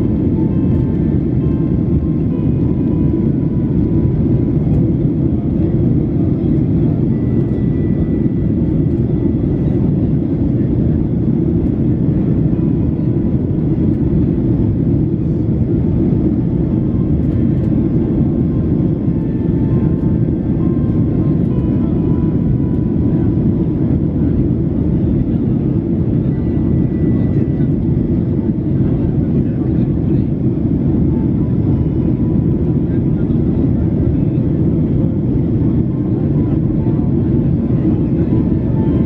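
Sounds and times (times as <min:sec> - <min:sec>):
airplane cabin engine rumble: 0:00.0 - 0:39.0.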